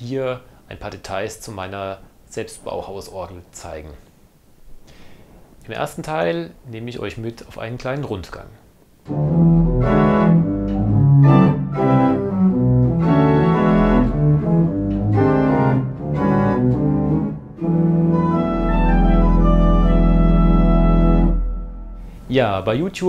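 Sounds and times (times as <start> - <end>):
pipe organ playing chords: 9.1 - 22.2.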